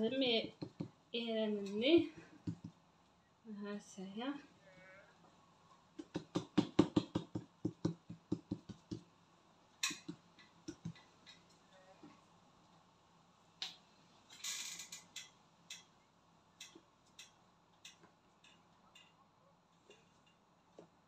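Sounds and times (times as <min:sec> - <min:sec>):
sharp knocks and clicks: 0:00.6 - 0:01.0, 0:02.0 - 0:02.8, 0:06.0 - 0:09.1, 0:09.8 - 0:11.5.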